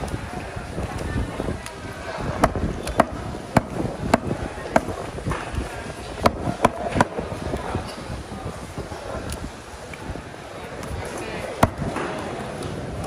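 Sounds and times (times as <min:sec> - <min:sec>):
cleaver chopping on wooden block: 0:02.4 - 0:04.9, 0:11.6 - 0:11.9.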